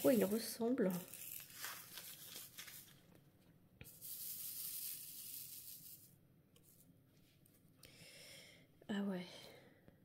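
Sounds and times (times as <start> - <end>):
tiny beads poured into plastic tray: 0.0 - 2.9, 3.9 - 6.1
plastic bag rustling: 0.0 - 3.1.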